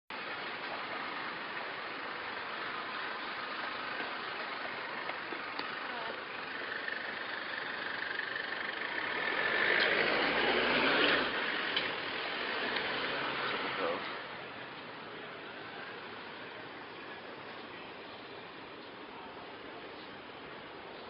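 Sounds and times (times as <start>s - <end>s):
street traffic: 0.1s - 21.0s
vehicle passing close: 5.9s - 16.3s.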